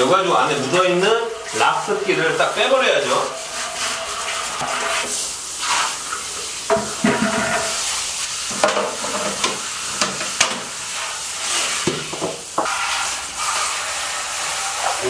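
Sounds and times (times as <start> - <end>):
shower water on tiled floor: 0.0 - 15.0.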